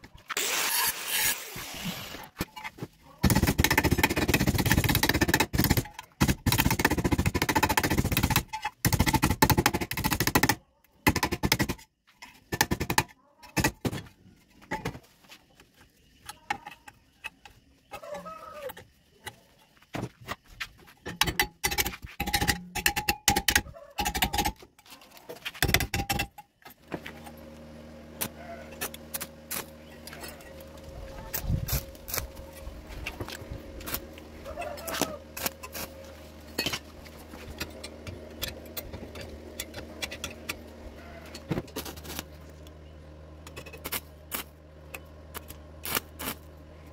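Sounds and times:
low electrical hum: 13.5s - 46.9s
welding arc crackling: 28.8s - 32.9s, 33.7s - 36.1s, 43.8s - 44.5s, 45.3s - 46.5s.

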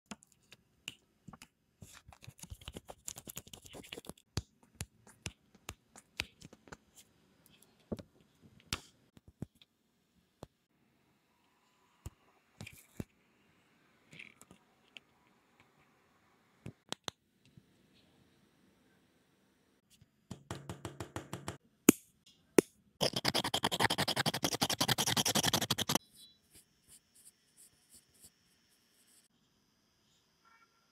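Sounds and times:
nail file rasping: 23.0s - 26.0s.

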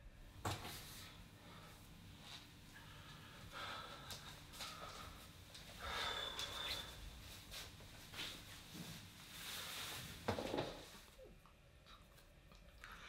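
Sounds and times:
man breathing heavily: 1.0s - 7.7s.

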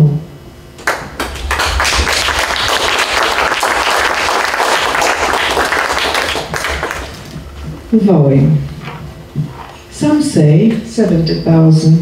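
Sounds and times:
audience applauding: 0.8s - 7.4s.

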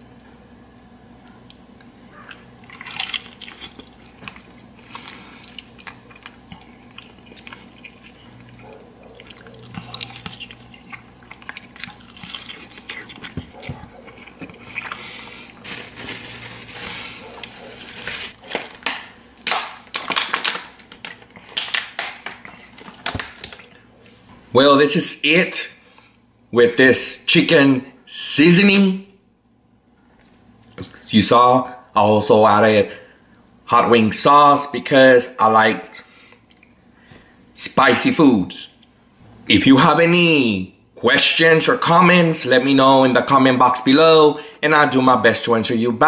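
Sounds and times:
wet chewing and smacking: 1.2s - 15.6s, 19.5s - 23.8s.

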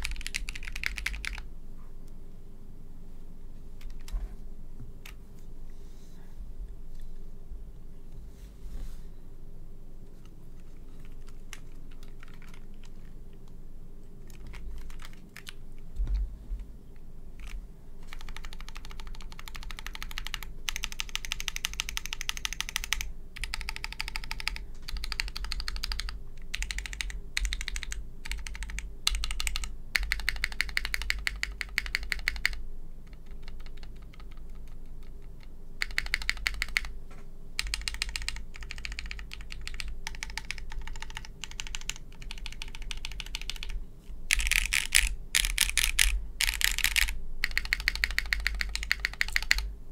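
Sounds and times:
mechanical keyboard typing: 0.0s - 1.5s, 10.6s - 13.1s, 14.2s - 15.6s, 17.4s - 36.9s, 37.6s - 49.7s.

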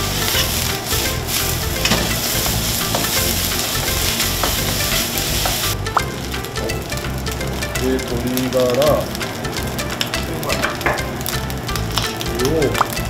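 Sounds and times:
spatula scraping and tapping pan: 0.0s - 7.4s
rice sizzling in a wok: 0.0s - 13.0s.

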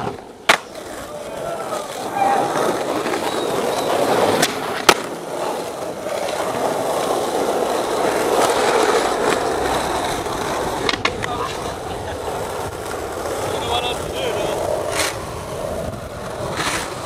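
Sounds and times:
skateboard landing clack: 0.0s - 1.1s, 4.1s - 5.4s, 10.5s - 11.6s
skateboard clicks: 0.0s - 17.0s
skateboard wheels rolling on asphalt: 0.0s - 17.0s.

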